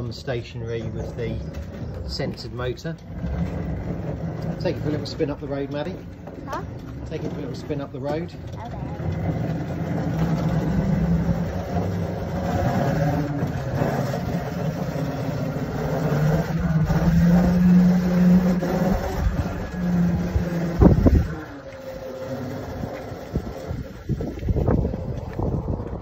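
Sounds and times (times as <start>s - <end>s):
electric motor humming: 8.5s - 25.9s.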